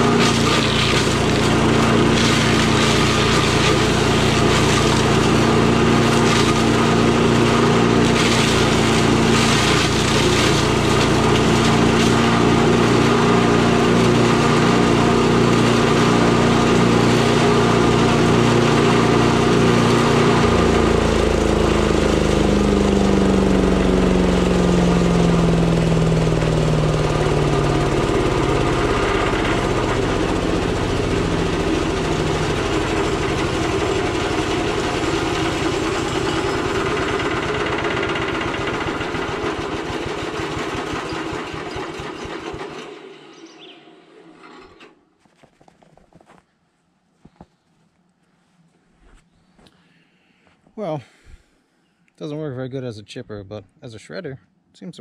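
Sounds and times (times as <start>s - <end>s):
branch crackling in shredder: 0.0s - 43.0s
chipper shredder engine running: 0.0s - 44.9s.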